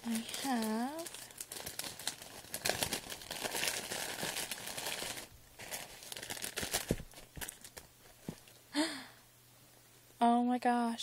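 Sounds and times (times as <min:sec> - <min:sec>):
tissue paper rustling: 0:00.0 - 0:08.5
plastic bag crinkling: 0:00.0 - 0:08.6.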